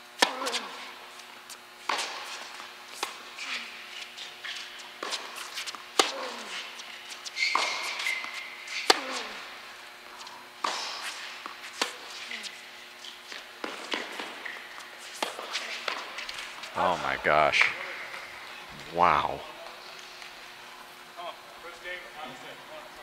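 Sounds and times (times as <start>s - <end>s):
high shoe squeak: 6.3s - 8.9s.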